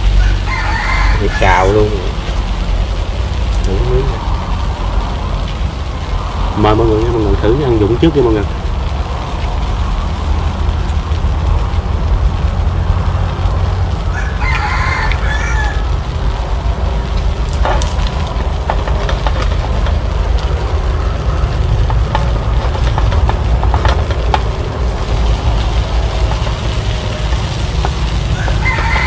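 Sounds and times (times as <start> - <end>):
rooster crowing: 0.0 - 2.2, 13.6 - 16.5, 25.0 - 29.0
steady low rumble: 0.0 - 29.0.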